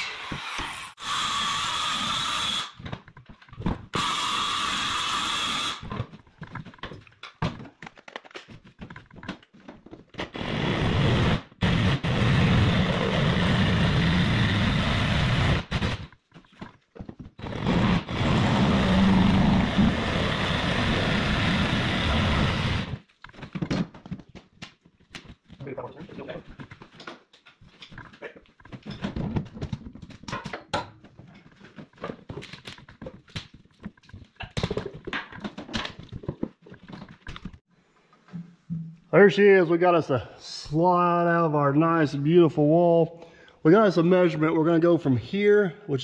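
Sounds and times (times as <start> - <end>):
circular saw cutting into wall: 0.0 - 2.8, 3.9 - 5.9, 10.3 - 16.0, 17.4 - 23.0
knocks and rattles: 5.9 - 10.3, 23.1 - 37.6.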